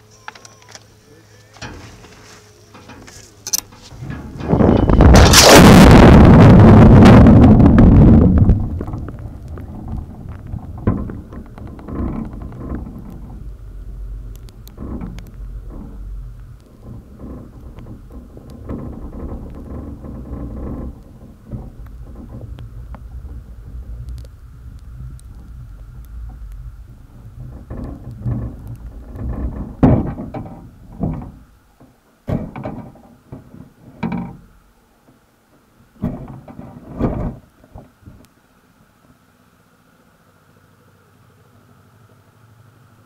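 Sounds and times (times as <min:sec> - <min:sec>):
dull knocks and thuds: 0:03.7 - 0:34.5, 0:36.0 - 0:38.2
muffled underwater rumble: 0:03.9 - 0:34.8.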